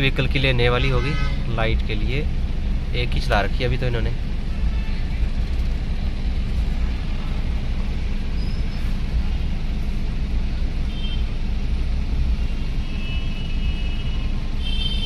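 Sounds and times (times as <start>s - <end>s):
car engine and road noise: 0.0s - 15.0s
distant car horn toots: 0.8s - 1.5s, 12.9s - 15.0s.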